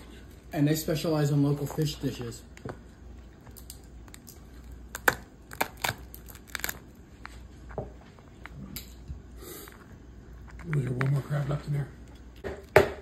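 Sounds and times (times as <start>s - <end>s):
crab shell cracking: 3.2s - 7.3s.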